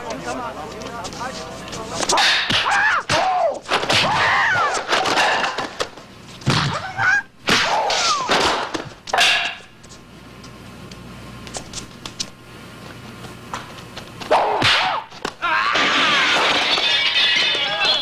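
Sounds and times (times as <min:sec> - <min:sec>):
high-pitched battle cries: 0:15.4 - 0:18.0.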